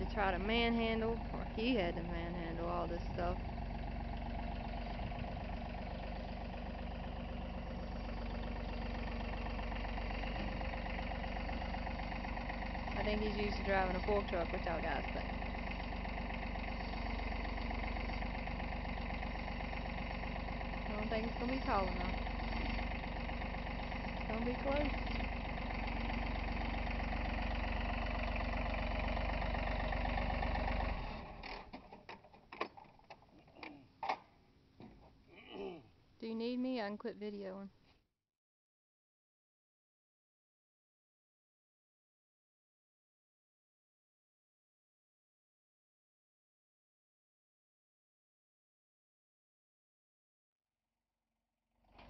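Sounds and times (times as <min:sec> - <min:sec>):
tractor engine running: 0:00.0 - 0:35.2.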